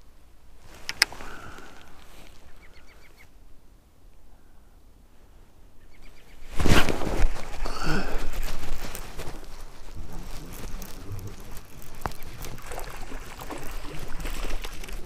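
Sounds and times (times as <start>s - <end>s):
small clicks: 0.8s - 1.2s
light water splashing: 7.2s - 15.0s.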